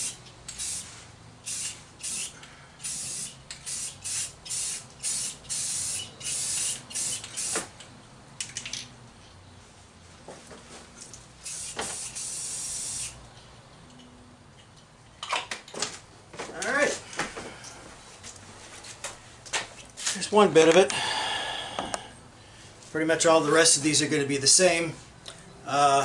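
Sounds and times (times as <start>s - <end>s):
spray can hissing: 0.0s - 7.7s, 11.4s - 13.2s.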